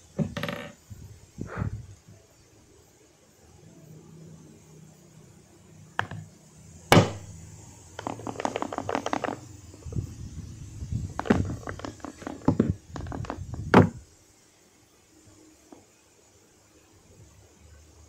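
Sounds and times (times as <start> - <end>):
microphone handling knocks: 0.2 - 0.8, 11.0 - 14.0.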